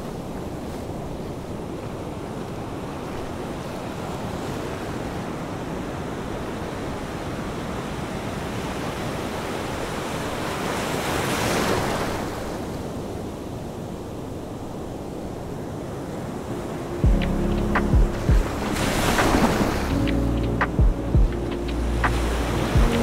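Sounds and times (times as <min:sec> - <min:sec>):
wind buffeting microphone: 0:15.0 - 0:23.0.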